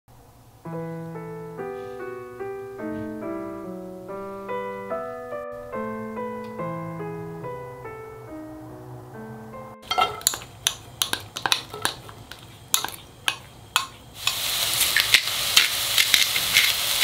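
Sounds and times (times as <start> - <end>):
gentle piano melody: 0.6 - 10.4.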